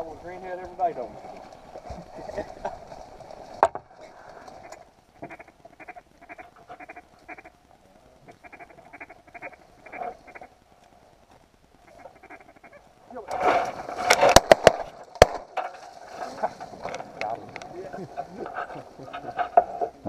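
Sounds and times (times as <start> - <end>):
duck quacks: 4.6 - 7.5, 8.3 - 10.5, 11.9 - 12.8.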